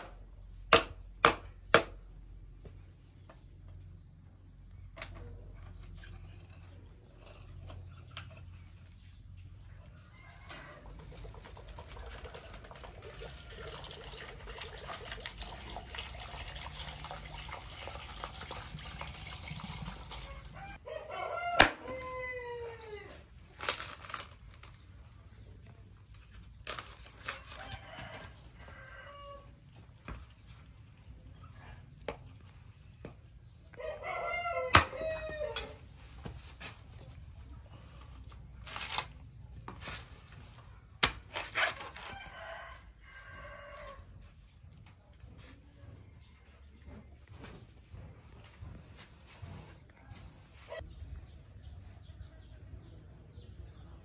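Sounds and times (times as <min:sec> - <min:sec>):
knife chopping coconut husk: 0:00.0 - 0:02.0, 0:21.6 - 0:21.9, 0:34.7 - 0:35.2, 0:41.0 - 0:42.1
rooster crowing: 0:20.2 - 0:23.2, 0:27.5 - 0:29.5, 0:33.7 - 0:35.8
knife scraping husk: 0:38.0 - 0:42.3.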